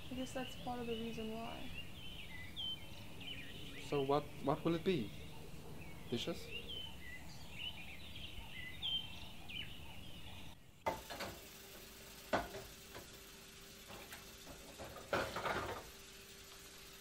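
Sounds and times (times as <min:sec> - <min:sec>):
birds chirping: 0:00.0 - 0:17.0
dishes clattering in a sink: 0:14.0 - 0:15.9.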